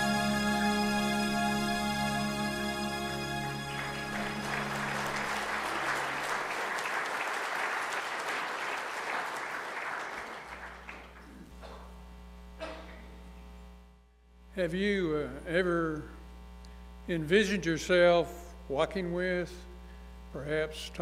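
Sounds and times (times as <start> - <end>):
held music chord: 0.0 - 6.4
low mains hum: 0.0 - 21.0
audience applauding: 2.6 - 11.5.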